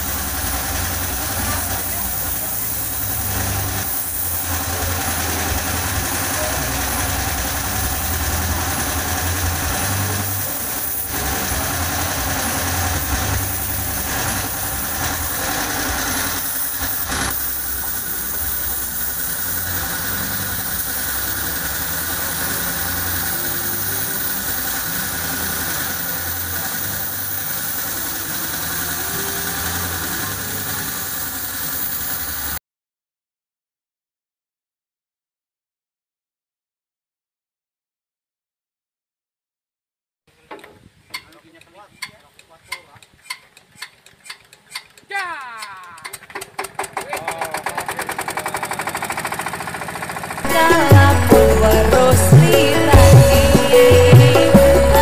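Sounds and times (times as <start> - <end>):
low motor hum: 0.0 - 31.4, 48.0 - 55.0
paint spray gun hissing: 0.0 - 32.6, 47.5 - 55.0.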